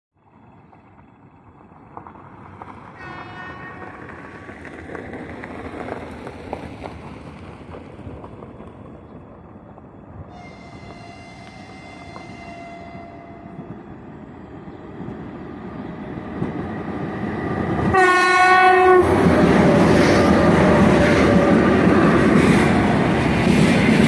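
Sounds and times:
locomotive horn blasts: 0:03.0 - 0:04.1, 0:10.3 - 0:13.8, 0:17.9 - 0:19.3.

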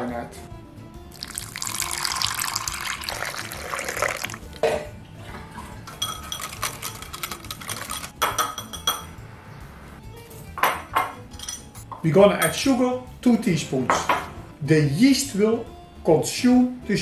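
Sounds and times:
water pouring into bowl: 0:01.1 - 0:04.6
whisk clinking against bowl: 0:06.0 - 0:09.0.

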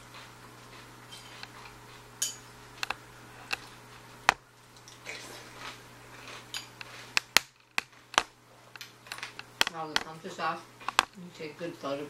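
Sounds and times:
sharp clicks and taps: 0:06.8 - 0:10.2, 0:10.8 - 0:11.2.

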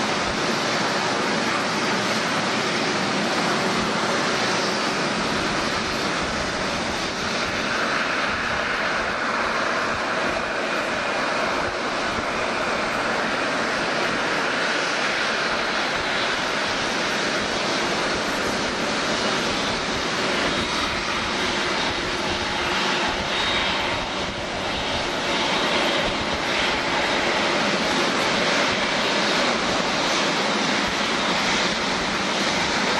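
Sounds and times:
jet engines taxiing: 0:00.0 - 0:32.9.

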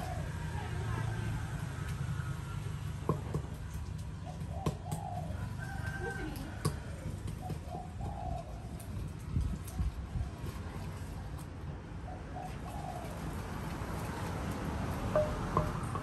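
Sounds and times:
dove cooing: 0:00.0 - 0:01.0, 0:04.1 - 0:10.7, 0:12.1 - 0:13.7
wooden pestle knocking in mortar: 0:15.2 - 0:16.0.

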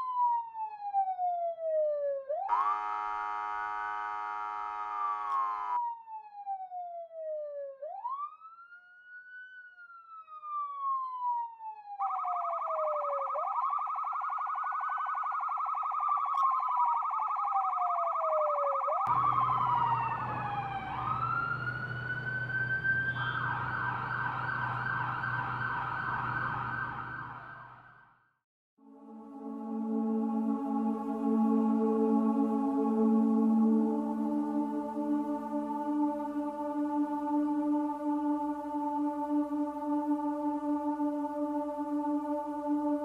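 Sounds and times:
police siren wailing: 0:00.0 - 0:28.0, 0:29.1 - 0:43.0
sustained synthesizer chord: 0:19.1 - 0:26.8, 0:28.8 - 0:43.0.

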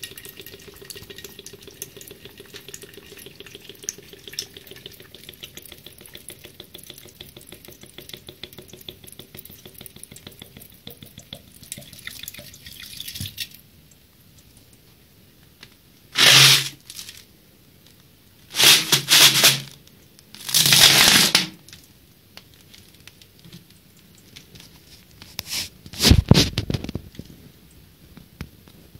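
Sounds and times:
water trickling into a sink: 0:00.0 - 0:14.8.

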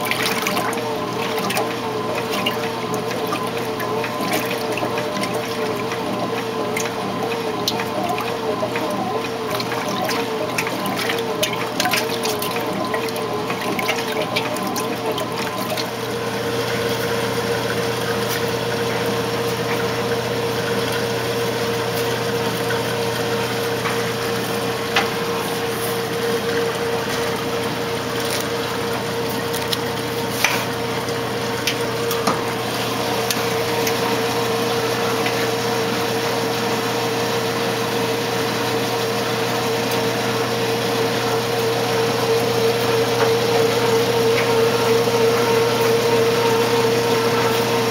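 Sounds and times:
washing machine pump humming: 0:00.0 - 0:47.9
water sloshing in washing machine: 0:00.0 - 0:47.9.

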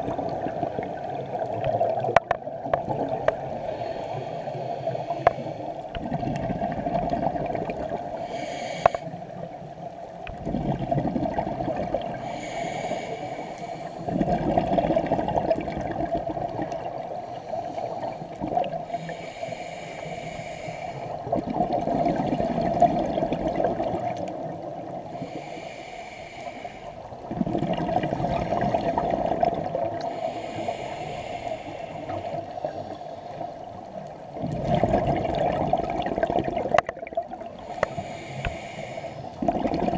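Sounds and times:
exhaled bubbles underwater: 0:00.0 - 0:03.8, 0:05.8 - 0:08.4, 0:09.2 - 0:13.2, 0:13.9 - 0:19.1, 0:21.1 - 0:25.4, 0:27.0 - 0:38.6, 0:39.2 - 0:39.9
regulator inhale hiss: 0:03.4 - 0:05.9, 0:08.1 - 0:09.5, 0:12.0 - 0:14.2, 0:17.1 - 0:21.3, 0:25.0 - 0:27.1, 0:30.0 - 0:33.5, 0:37.5 - 0:39.4.

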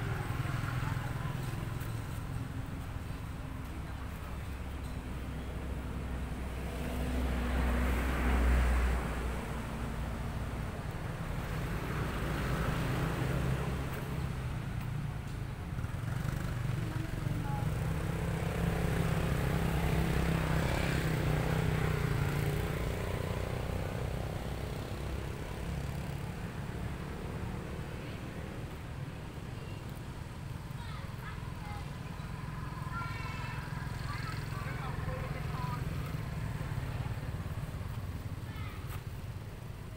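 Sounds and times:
vehicle engine rumble: 0:00.0 - 0:39.9.

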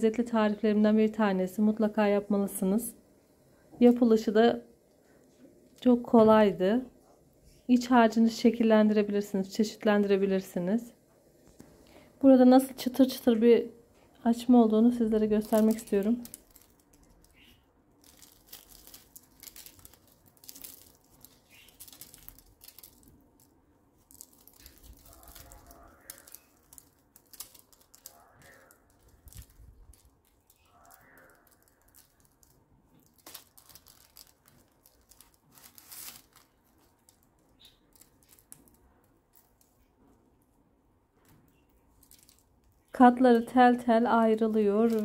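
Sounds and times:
bread crust crackling as torn: 0:15.2 - 0:39.9, 0:41.9 - 0:42.9.

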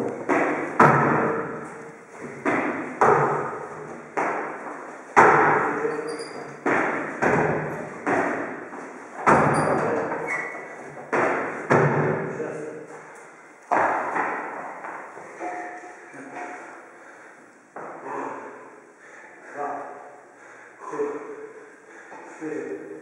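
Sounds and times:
feet thudding on wooden box: 0:02.2 - 0:05.8, 0:13.7 - 0:15.1.

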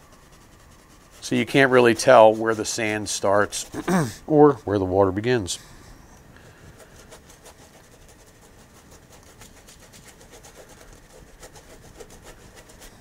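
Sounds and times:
brush scrubbing on canvas: 0:00.0 - 0:04.8, 0:06.5 - 0:13.0.

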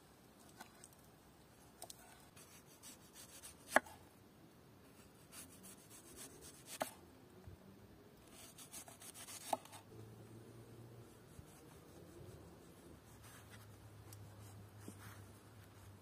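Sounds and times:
knife slicing onion: 0:02.4 - 0:03.9, 0:08.3 - 0:09.8.

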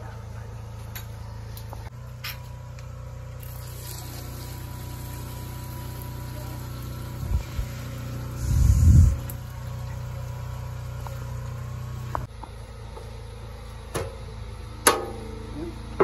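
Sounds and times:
low engine-like hum: 0:00.0 - 0:16.0
water pouring into metal pot: 0:03.4 - 0:08.4.

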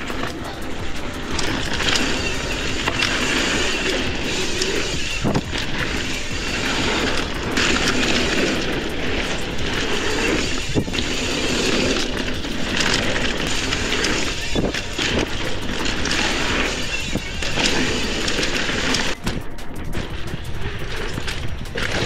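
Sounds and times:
bike knocks and rattles: 0:00.0 - 0:22.0
bike tyre noise: 0:00.0 - 0:22.0
wind rush on microphone: 0:02.2 - 0:15.3, 0:19.0 - 0:22.0.

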